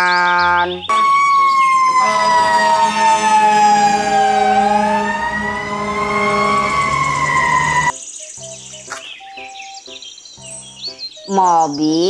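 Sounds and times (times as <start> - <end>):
fire engine siren wailing: 0.8 - 7.9.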